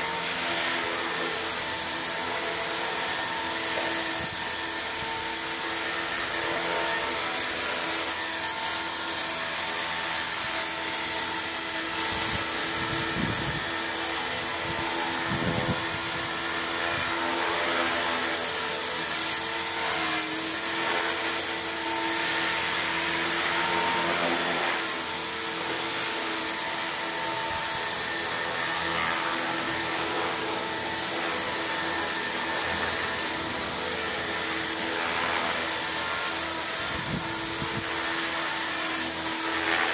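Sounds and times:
model helicopter whining: 0.0 - 39.9.

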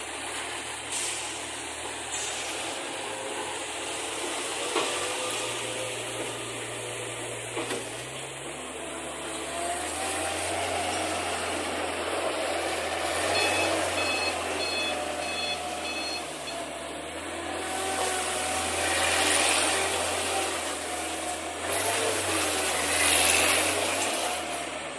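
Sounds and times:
rushing hiss: 0.5 - 7.4
skid steer loader engine running: 2.7 - 24.9
reversing alarm beeping: 13.2 - 16.8.

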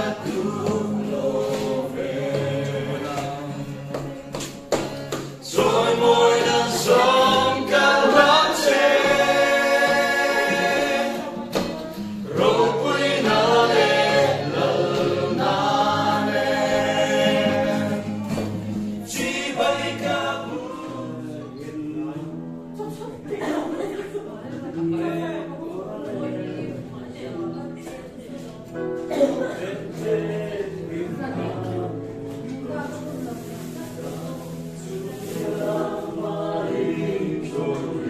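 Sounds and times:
choir singing in harmony: 0.0 - 4.0, 5.4 - 22.2, 34.4 - 38.0.

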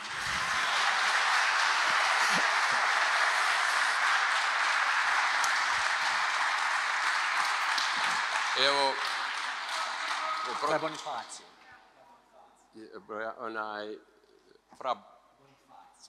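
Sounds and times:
congregation applauding: 0.0 - 11.6.

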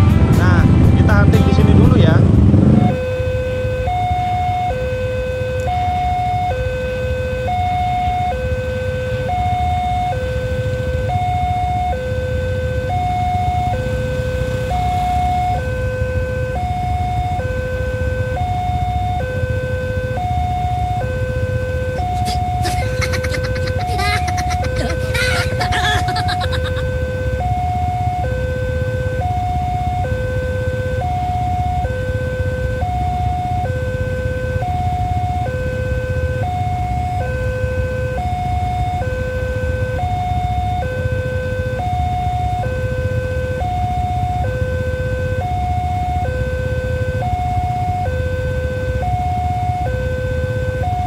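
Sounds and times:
two-tone crossing alarm: 2.5 - 51.0.

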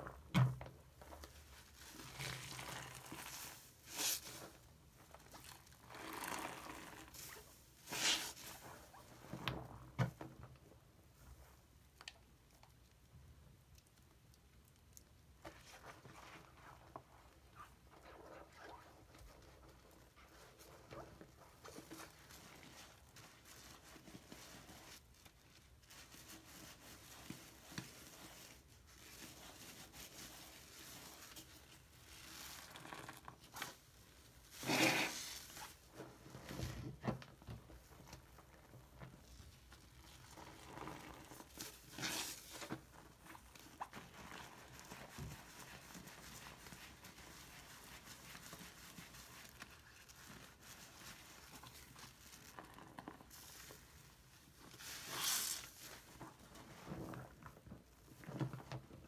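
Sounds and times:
sponge squelching in foam: 1.4 - 9.1, 34.4 - 36.1.

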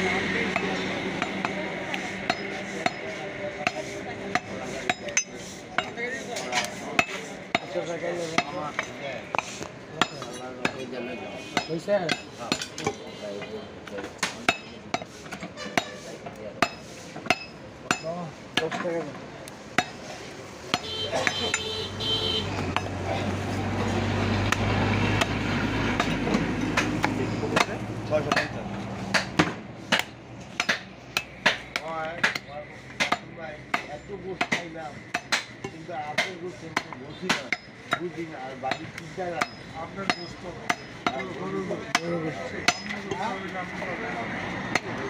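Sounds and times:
cleaver chopping meat on wood: 24.4 - 25.4, 26.0 - 38.1.

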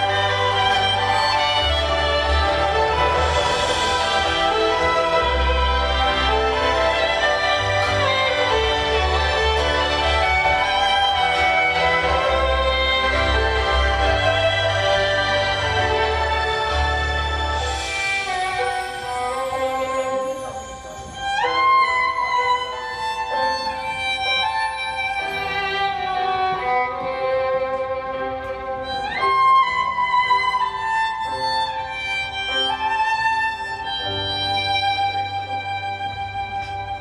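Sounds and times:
violin playing slow melody: 0.0 - 37.0.

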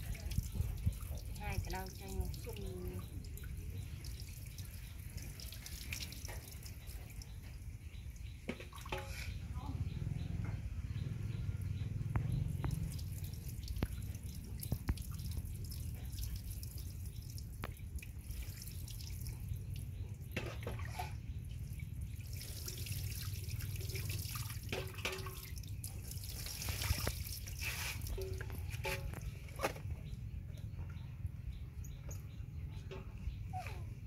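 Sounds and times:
water dripping onto wet concrete: 0.0 - 7.5, 12.1 - 20.4, 21.6 - 29.4
water splashing from a dipper: 0.0 - 7.6, 8.4 - 9.4, 12.5 - 30.1.

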